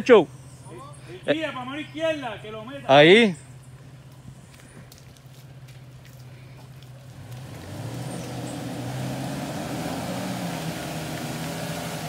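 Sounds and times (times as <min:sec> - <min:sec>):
off-road vehicle engine revving: 0:05.9 - 0:12.0.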